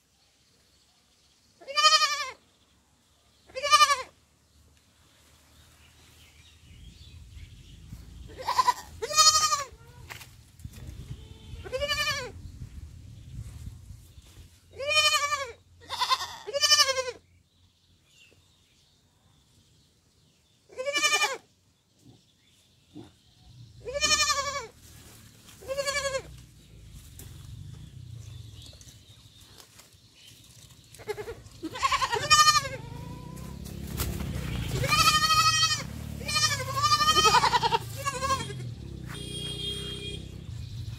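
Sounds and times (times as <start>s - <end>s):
baby goat bleating: 1.6s - 2.4s, 3.5s - 4.2s, 8.3s - 10.1s, 11.1s - 12.4s, 14.7s - 17.2s, 20.7s - 21.5s, 23.8s - 24.7s, 25.6s - 26.3s, 31.0s - 33.5s, 34.5s - 38.7s.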